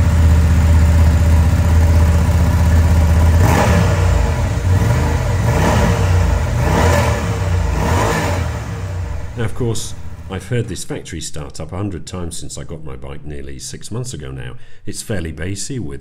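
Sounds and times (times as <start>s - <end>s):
motorcycle engine idling and revving: 0.0s - 10.4s.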